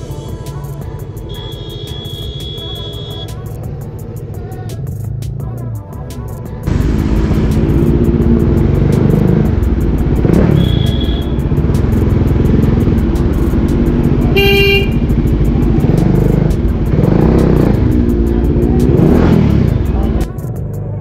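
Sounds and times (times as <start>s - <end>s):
motorcycle engine running: 0.0s - 21.0s
high-pitched horn toot: 10.3s - 11.6s, 14.3s - 15.2s
low horn blast: 14.2s - 15.4s.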